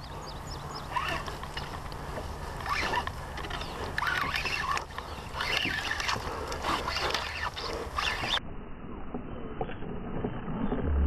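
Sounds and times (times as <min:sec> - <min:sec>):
low rumble: 0:07.8 - 0:11.0.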